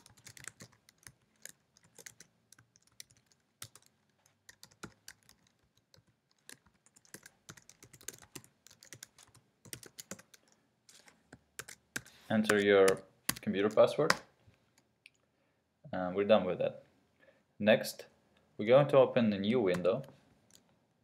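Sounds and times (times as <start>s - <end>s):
typing on a computer keyboard: 0.0s - 10.6s, 11.3s - 13.8s.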